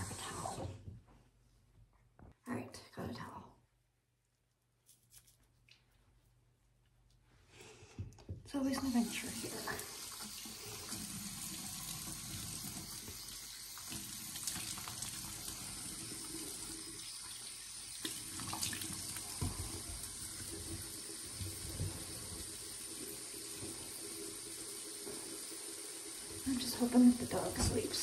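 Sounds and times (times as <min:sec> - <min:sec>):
sink tap running: 0:08.6 - 0:28.0.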